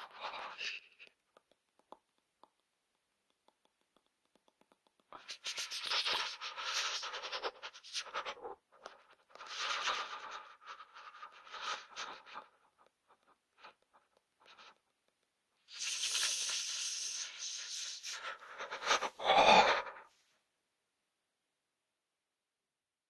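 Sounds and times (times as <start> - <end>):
shaky hissing breaths: 15.7 - 20.1.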